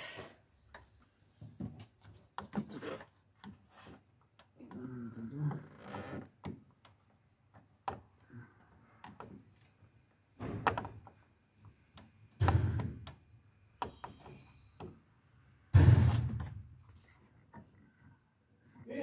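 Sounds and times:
knocks and thuds: 15.7s - 16.7s.

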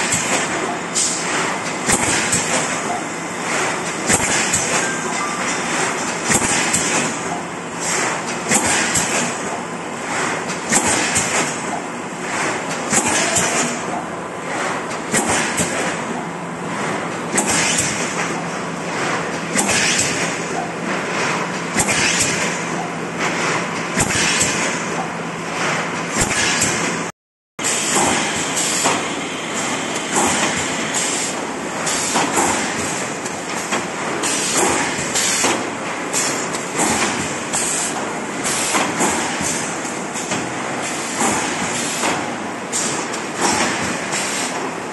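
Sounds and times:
steady machine noise: 0.0s - 44.9s
hiss and clatter bursts: 6.0s - 13.8s, 27.6s - 44.7s.

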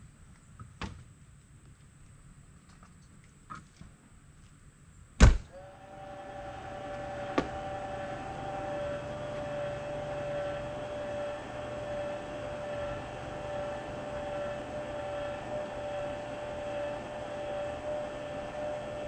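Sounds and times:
car door slamming: 5.2s - 5.4s
vehicle motor humming and whining: 5.5s - 19.0s.

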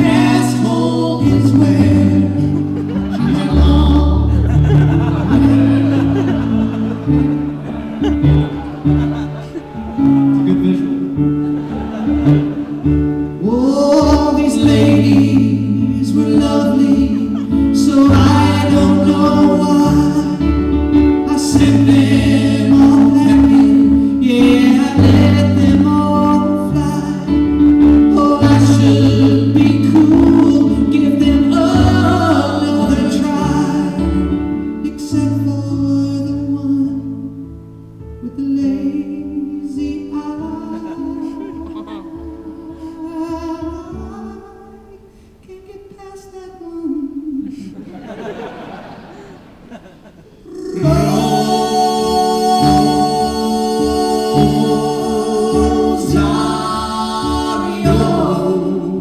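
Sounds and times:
man singing into microphone: 0.0s - 4.6s, 13.4s - 37.6s, 38.2s - 47.9s, 50.4s - 59.0s
instrumental accompaniment: 0.0s - 38.3s.

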